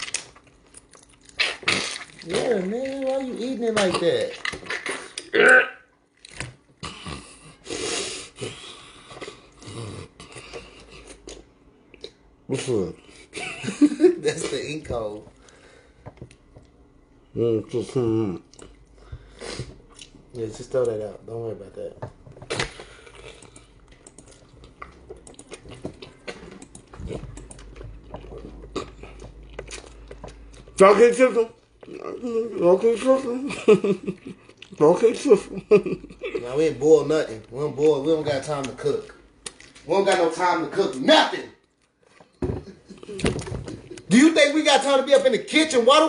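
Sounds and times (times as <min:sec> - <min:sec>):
man chewing wetly: 0:00.0 - 0:03.3, 0:06.1 - 0:12.2, 0:18.4 - 0:20.2, 0:22.4 - 0:30.8, 0:34.0 - 0:34.8
wet mouth chewing clicks: 0:22.5 - 0:30.8.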